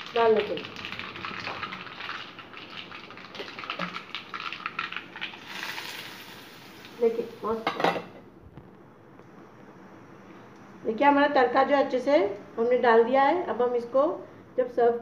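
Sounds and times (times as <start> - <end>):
hot oil hissing: 0.0 - 7.7
seeds crackling in hot oil: 0.0 - 7.7.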